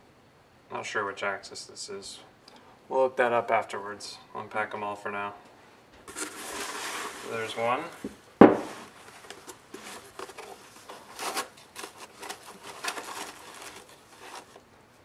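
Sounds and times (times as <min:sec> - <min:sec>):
rustling and scraping of foam packing: 0:06.0 - 0:08.0, 0:08.6 - 0:14.7.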